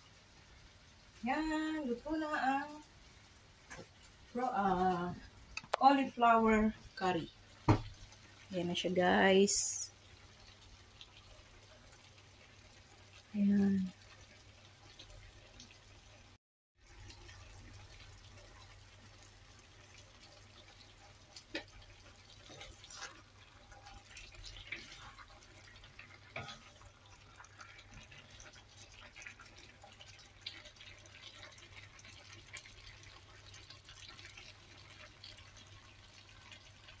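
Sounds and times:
curry bubbling in a wok: 6.7 - 8.5, 9.6 - 37.0
wooden spatula tapping and scraping: 7.6 - 8.0.

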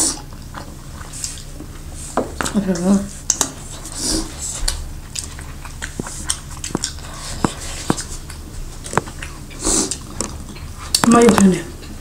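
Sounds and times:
person chewing and biting: 3.2 - 11.1
mouth clicks and smacks: 4.6 - 11.4.

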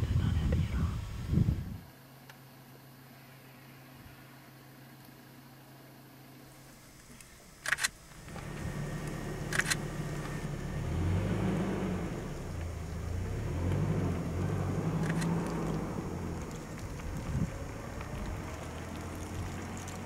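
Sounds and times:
car engine idling: 4.1 - 20.0
camera shutter clicks: 7.2 - 8.0, 9.4 - 9.9, 15.0 - 15.6.

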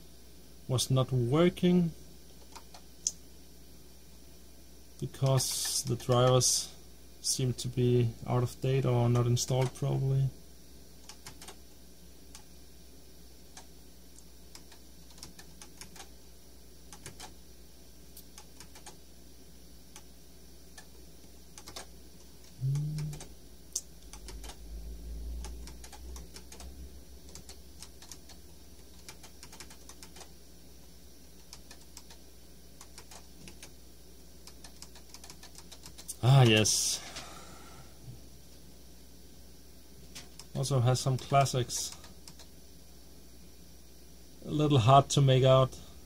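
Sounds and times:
faint low hum: 0.0 - 46.0
computer keys clicking: 2.4 - 3.2, 5.2 - 6.4, 11.0 - 11.6, 13.5 - 16.1, 16.9 - 17.4, 18.2 - 19.0, 20.7 - 24.6, 25.4 - 30.3, 31.4 - 32.2, 32.8 - 33.8, 34.4 - 36.6, 41.8 - 42.5.

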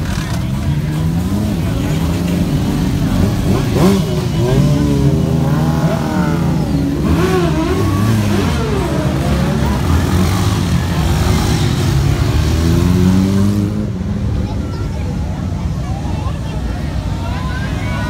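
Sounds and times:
vehicle engines running: 0.0 - 18.0
people calling out: 3.2 - 10.5, 14.6 - 18.0.

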